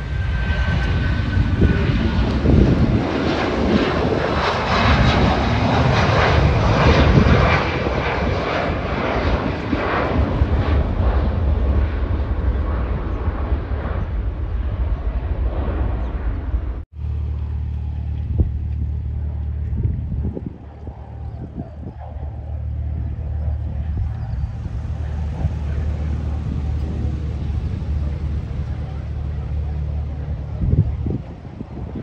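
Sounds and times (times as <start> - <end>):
jet engine roar: 0.0 - 32.0
faint high whine: 21.0 - 30.9.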